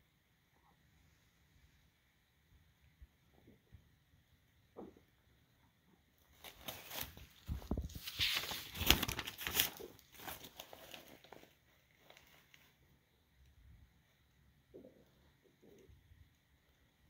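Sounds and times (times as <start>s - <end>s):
paper rustling and crinkling: 6.3s - 12.8s.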